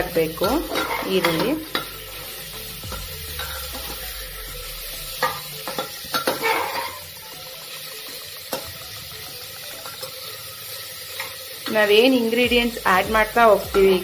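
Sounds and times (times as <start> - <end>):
onions sizzling in oil: 0.0 - 14.0
metal spatula scraping pot: 0.1 - 4.2, 5.1 - 7.2.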